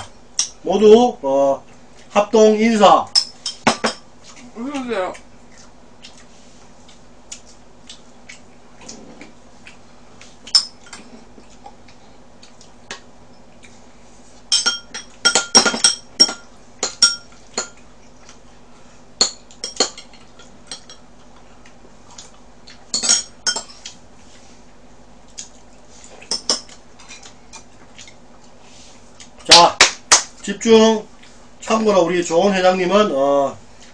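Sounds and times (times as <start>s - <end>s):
faint hum: 0.0s - 33.9s
utensils clinking on bowls: 3.1s - 4.0s, 10.5s - 11.0s, 14.5s - 17.8s, 19.2s - 21.0s, 22.9s - 23.8s.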